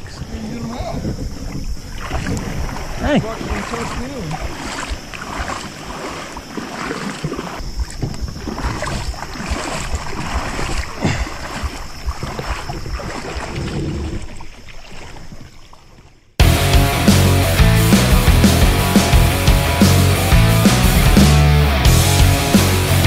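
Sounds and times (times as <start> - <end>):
wind on microphone: 0.0 - 5.5, 7.6 - 14.4
water splashing around kayak: 0.0 - 16.4
rock music: 16.4 - 23.0.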